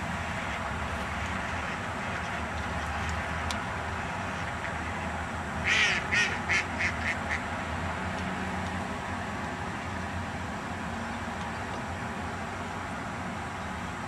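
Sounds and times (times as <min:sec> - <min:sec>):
duck quacking: 0:05.6 - 0:07.4.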